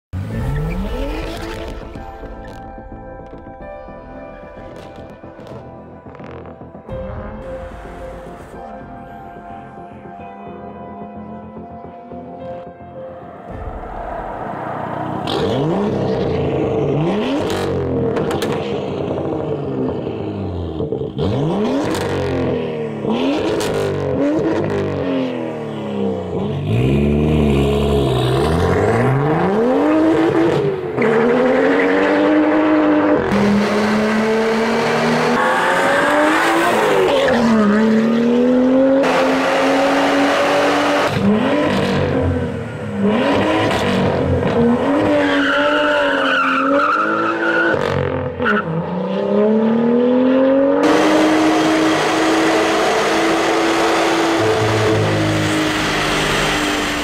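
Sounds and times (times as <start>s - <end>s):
car engine revving: 0.2s - 2.6s, 13.1s - 57.0s
car accelerating hard: 13.3s - 57.0s.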